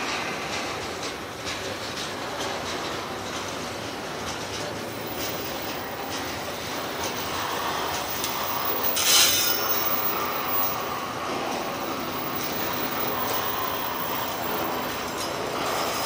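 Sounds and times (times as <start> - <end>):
freight train rolling past: 0.0 - 16.0
high wheel squeal: 4.9 - 16.0.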